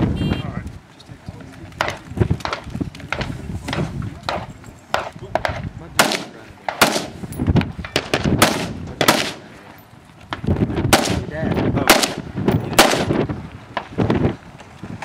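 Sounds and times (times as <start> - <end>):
rifle shots: 4.3 - 9.5, 10.9 - 13.2.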